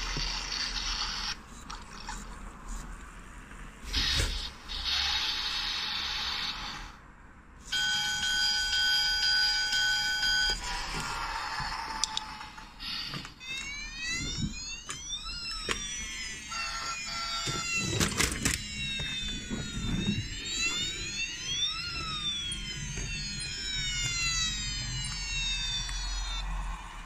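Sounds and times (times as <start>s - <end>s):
electronic toy siren tones: 3.9s - 6.9s, 7.6s - 11.3s, 11.9s - 26.8s.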